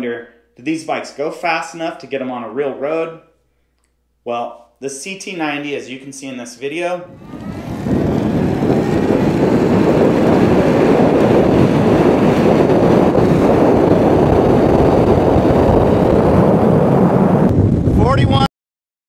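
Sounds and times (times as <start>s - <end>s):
road noise: 7.1s - 13.2s
wind rush: 7.1s - 18.5s.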